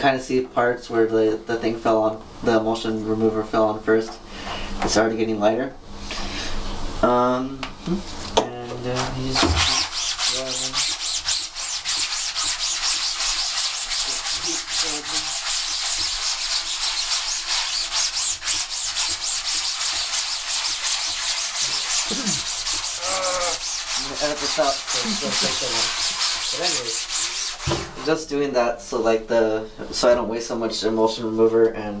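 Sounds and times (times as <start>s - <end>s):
sponge scrubbing mesh screen: 8.9s - 28.0s.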